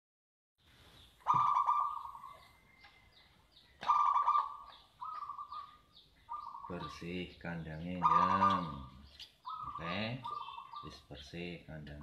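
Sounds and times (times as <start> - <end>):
dove cooing: 1.2 - 2.8, 3.8 - 7.0, 7.8 - 11.0.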